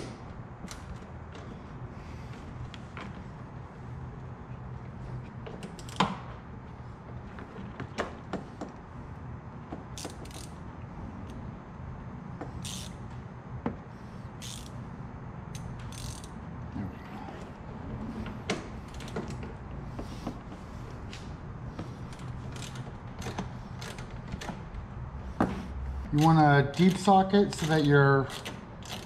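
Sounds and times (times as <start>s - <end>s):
ratchet clicking: 5.6s - 6.1s, 9.9s - 10.6s, 12.5s - 13.2s, 14.4s - 14.8s, 15.5s - 16.4s, 22.1s - 24.6s, 26.2s - 29.0s.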